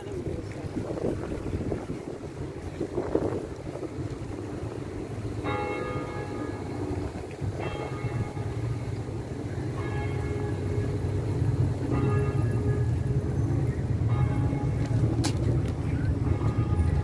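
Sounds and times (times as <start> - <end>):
steady low rumble: 0.0 - 17.0
bell tolling: 5.4 - 15.2.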